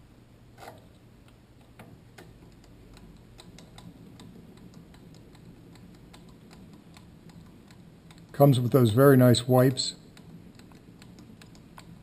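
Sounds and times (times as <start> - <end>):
lathe cross slide ticking: 1.7 - 9.0, 9.9 - 12.0.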